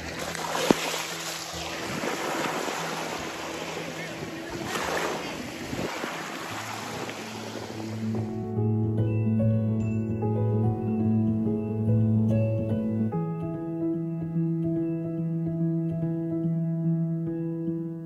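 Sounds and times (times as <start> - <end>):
sea water washing: 0.0 - 8.4
music: 0.0 - 18.0
wind buffeting microphone: 1.5 - 8.4.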